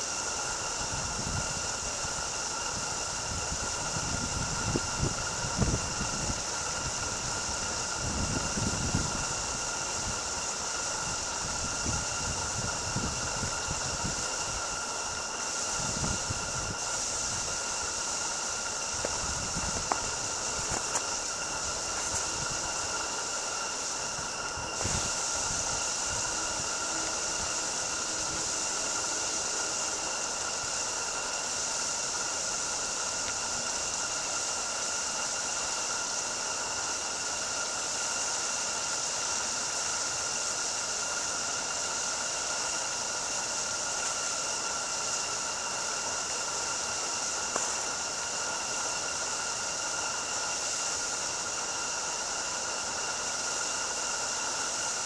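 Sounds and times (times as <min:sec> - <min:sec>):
steam locomotive hissing: 0:00.0 - 0:55.0
thin high tone: 0:14.9 - 0:34.3.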